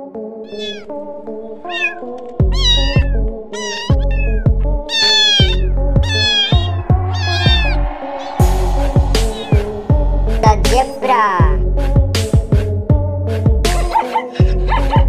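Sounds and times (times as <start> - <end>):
cat meowing: 0.5 - 1.0, 1.6 - 8.4, 9.2 - 9.7
background music with heavy bass beat: 2.3 - 15.0.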